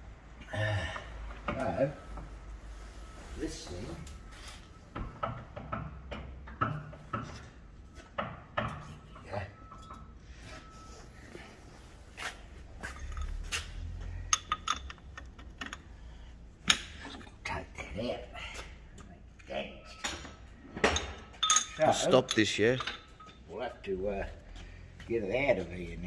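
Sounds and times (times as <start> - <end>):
low steady hum: 0.0 - 24.8
metal tools clinking: 12.8 - 17.1, 19.9 - 23.6.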